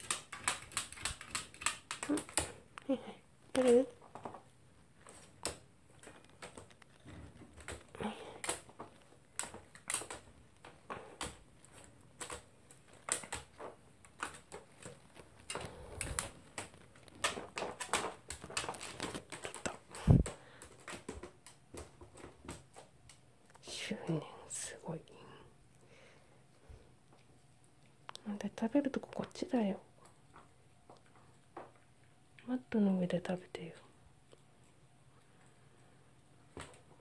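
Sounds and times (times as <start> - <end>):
dog crunching kibble: 0.0 - 2.8, 3.5 - 23.1.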